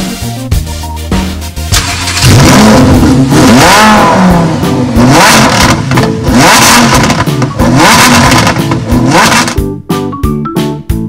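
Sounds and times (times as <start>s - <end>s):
car engine revving: 1.7s - 9.6s.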